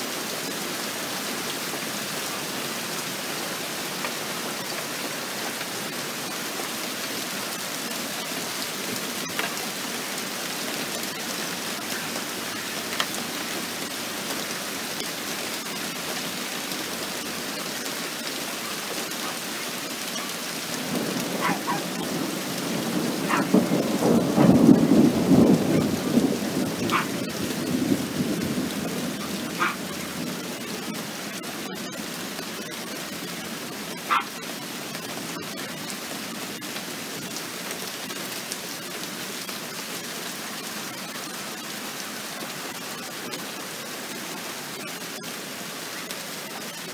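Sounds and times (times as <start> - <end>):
steady rain: 0.0 - 46.9
rolling thunder: 20.8 - 30.5.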